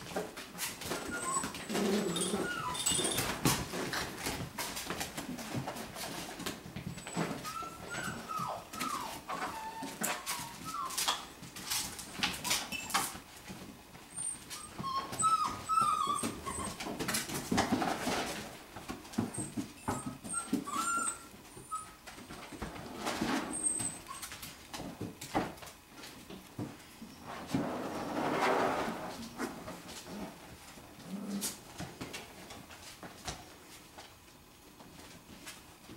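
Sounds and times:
puppies whimpering: 0.9s - 3.4s, 6.9s - 11.2s, 14.1s - 16.9s, 19.3s - 22.7s, 23.5s - 24.3s.

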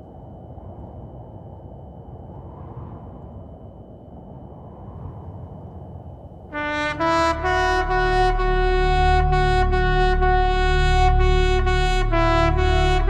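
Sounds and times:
faint low rumble: 0.0s - 13.0s
solo trumpet: 6.5s - 13.0s.

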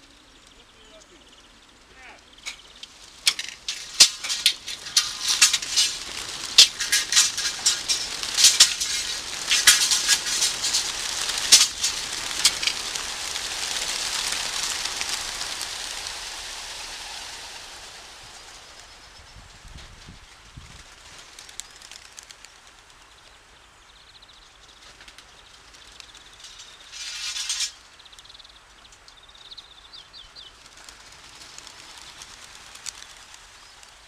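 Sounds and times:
pigeon wings clapping: 2.4s - 18.8s, 20.7s - 23.2s, 24.8s - 27.8s, 30.5s - 34.0s
whir of flock wings: 2.4s - 23.5s, 24.8s - 27.9s, 30.5s - 34.0s.

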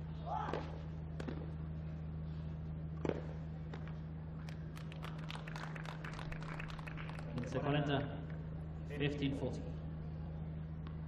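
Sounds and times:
steady low hum: 0.0s - 11.0s
tennis ball struck by racquet: 0.4s - 1.5s, 3.0s - 4.0s
crowd clapping: 4.4s - 8.4s.

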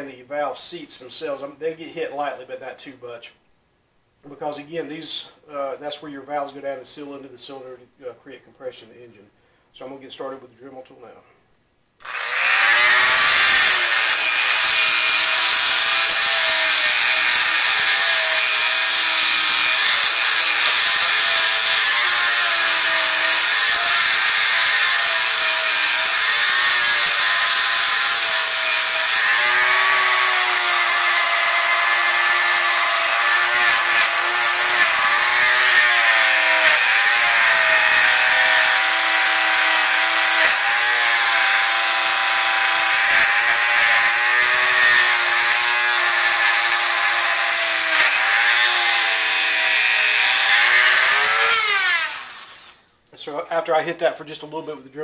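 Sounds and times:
rotary tool wire brush scrubbing metal: 12.1s - 41.1s.

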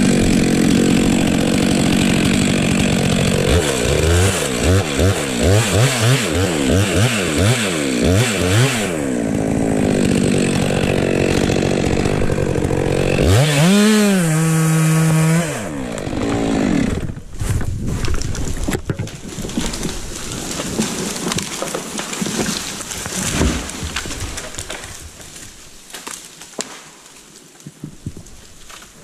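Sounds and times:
chainsaw running under load: 0.0s - 17.4s
cracking and crunching wood: 0.0s - 29.0s.

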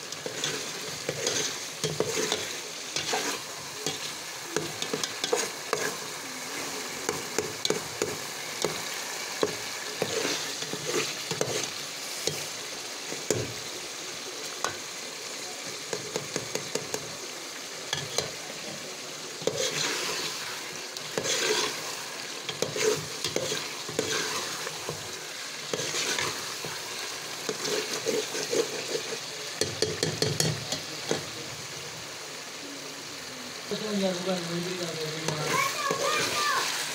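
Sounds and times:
food sizzling in metal pot: 0.0s - 36.9s
metal spatula scraping pot: 0.1s - 8.8s, 9.4s - 12.3s, 19.4s - 30.6s.

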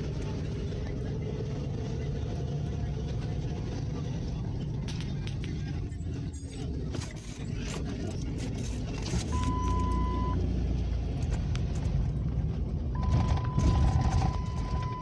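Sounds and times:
car engine and road rumble: 0.0s - 15.0s
high beep: 9.3s - 10.4s.

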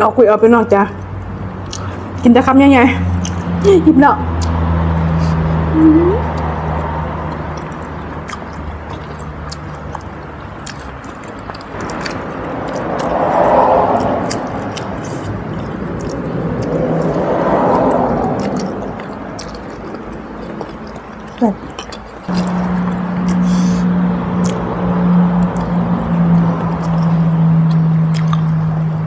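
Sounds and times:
chewing and eating: 1.0s - 2.2s, 3.1s - 3.5s, 4.3s - 5.7s, 6.3s - 29.0s
wet mouth clicks: 1.6s - 2.0s, 4.4s - 4.6s, 7.2s - 22.6s, 23.2s - 24.7s, 26.7s - 28.6s
rushing noise: 11.7s - 19.9s, 22.3s - 29.0s.

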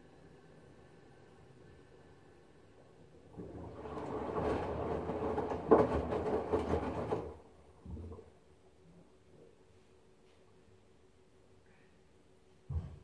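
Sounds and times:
water sloshing and laundry tumbling: 3.2s - 8.4s
washing machine drum turning: 3.3s - 8.2s.

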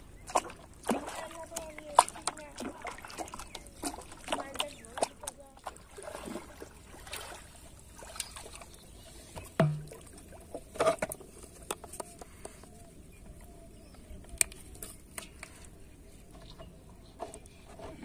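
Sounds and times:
knocks in metal basin: 9.6s - 10.0s.

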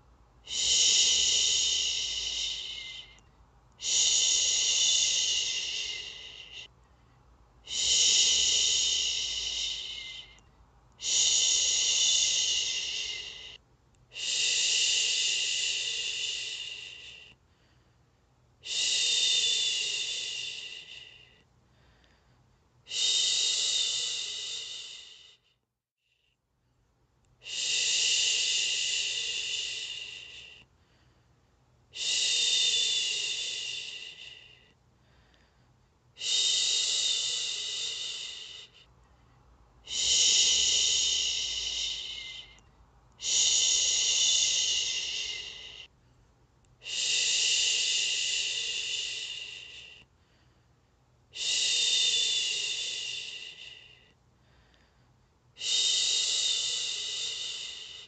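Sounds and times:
woman shushing: 0.5s - 3.2s, 3.8s - 6.7s, 7.7s - 10.4s, 11.0s - 17.3s, 39.9s - 42.6s, 43.2s - 45.9s.

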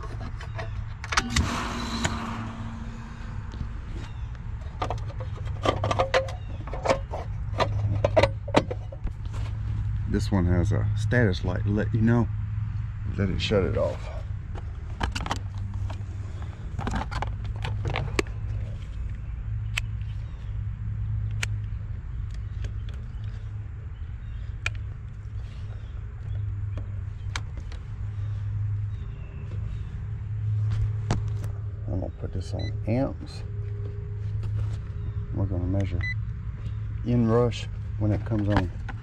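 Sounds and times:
steady low hum: 0.0s - 20.7s.

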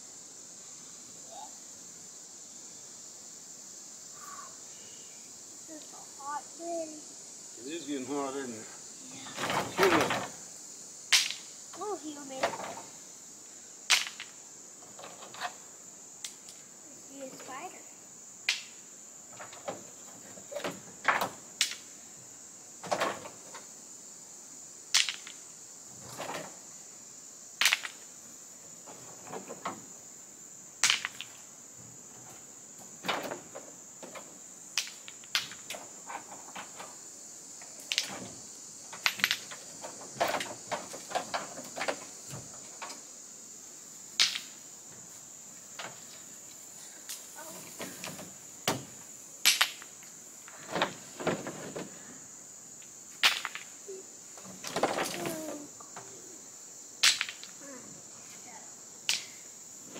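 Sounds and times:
insects droning: 0.0s - 59.9s
sharp knocks and clatters: 9.3s - 10.4s, 12.3s - 12.9s, 19.3s - 21.8s, 22.8s - 23.7s, 26.0s - 26.6s, 28.8s - 29.9s, 32.1s - 37.0s, 37.9s - 43.0s, 47.7s - 49.9s, 50.5s - 51.9s.

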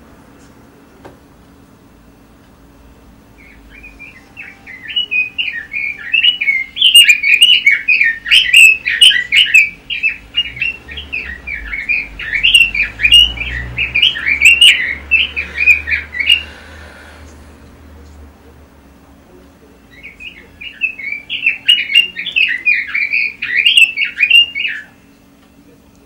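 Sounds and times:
bird singing warbling notes: 3.3s - 16.6s, 19.8s - 25.3s.

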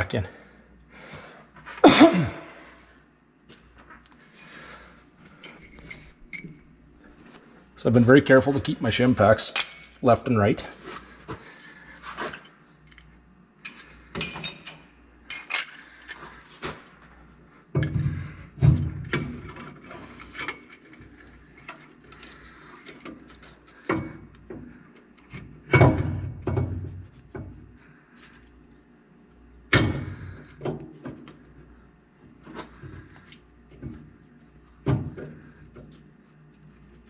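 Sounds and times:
metal parts clinking and clunking: 12.4s - 16.3s, 17.8s - 24.2s.

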